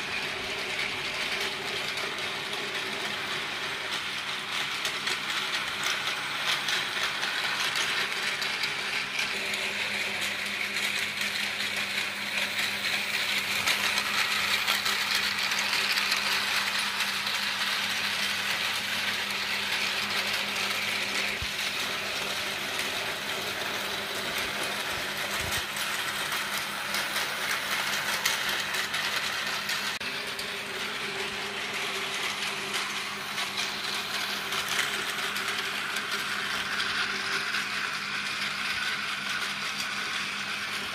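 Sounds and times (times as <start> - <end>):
toy train motors whirring: 0.0 - 40.9.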